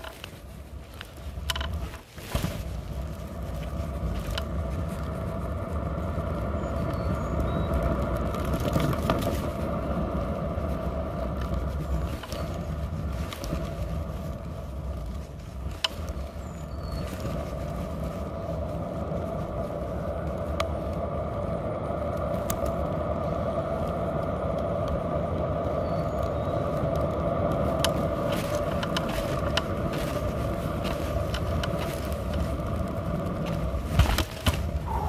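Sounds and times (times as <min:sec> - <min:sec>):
sharp clicks and rattles: 0:00.0 - 0:05.2, 0:27.0 - 0:34.9
scooter wheels rolling on asphalt: 0:00.0 - 0:35.0.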